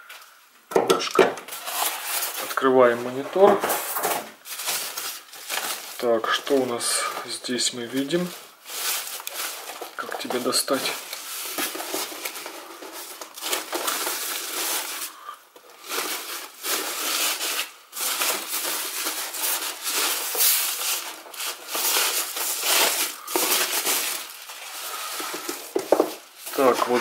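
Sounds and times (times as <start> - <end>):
plastic bag crinkling and rustling: 0.0 - 27.0.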